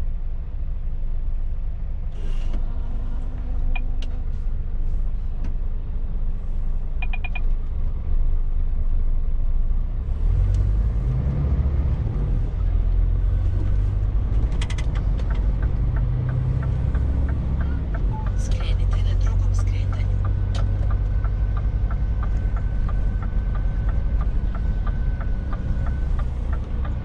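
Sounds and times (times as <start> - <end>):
truck engine running: 11.9 - 27.0.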